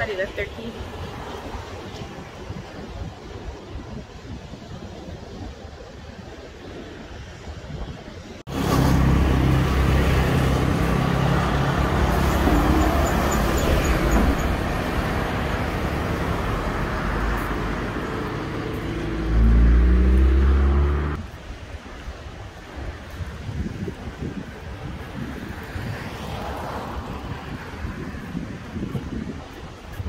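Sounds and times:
road noise: 0:00.0 - 0:30.0.

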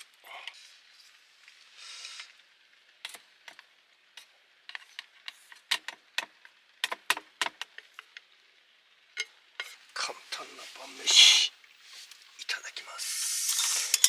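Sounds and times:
chopsticks scraping metal pan: 0:09.6 - 0:09.8, 0:13.4 - 0:14.0.

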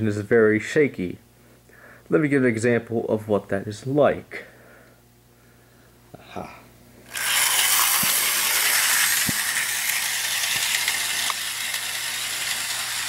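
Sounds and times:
model locomotive motor buzzing: 0:07.1 - 0:13.0.

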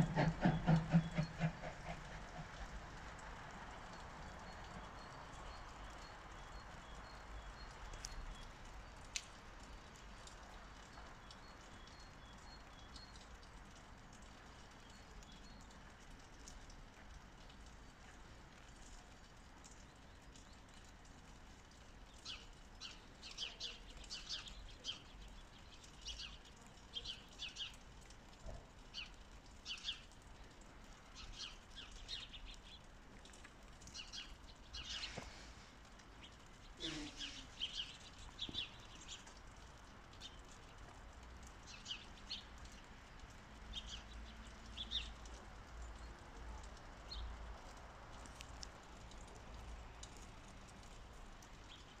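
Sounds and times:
small birds chirping: 0:22.0 - 0:40.7, 0:41.5 - 0:52.0.

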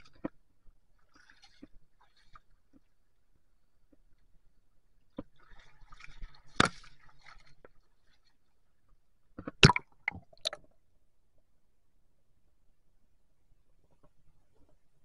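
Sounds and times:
sharp water splashes: 0:09.6 - 0:10.6.

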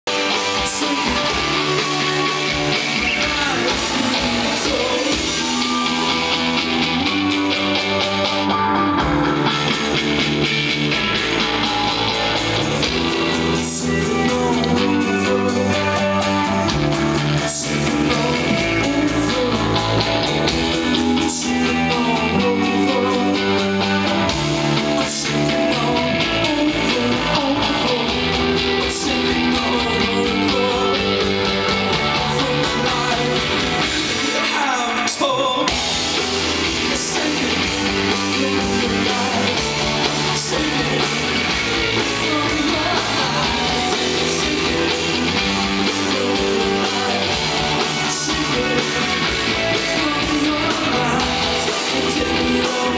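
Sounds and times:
person singing: 0:00.0 - 0:09.8, 0:11.1 - 0:52.9
live rock band playing: 0:00.0 - 0:52.9.

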